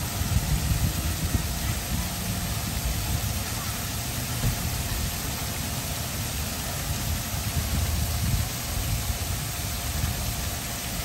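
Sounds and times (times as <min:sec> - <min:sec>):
fountain water splashing: 0:00.0 - 0:11.0.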